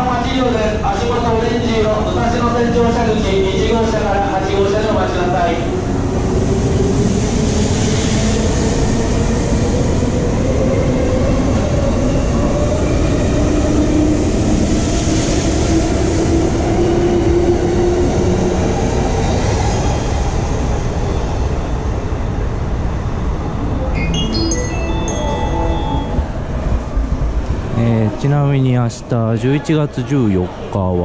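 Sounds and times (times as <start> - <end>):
faint rising tone: 23.2 - 27.0
electric train wheels rumbling: 24.8 - 28.6.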